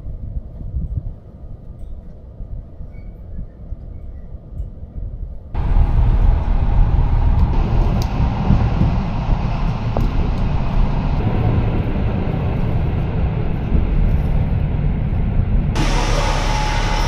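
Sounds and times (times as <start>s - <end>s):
train rumbling on rails: 5.5s - 17.0s.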